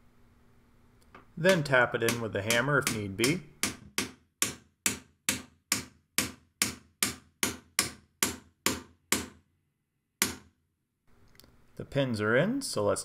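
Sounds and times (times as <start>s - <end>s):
hammer striking metal pin: 1.4s - 9.4s, 10.2s - 10.6s.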